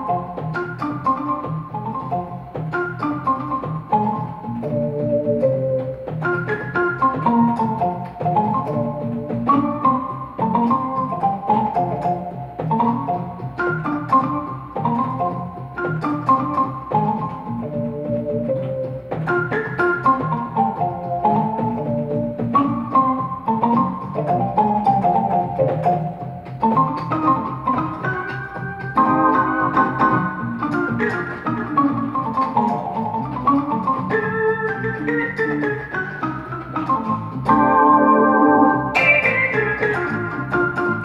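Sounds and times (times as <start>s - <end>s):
electronic keyboard organ melody: 0.0s - 41.0s.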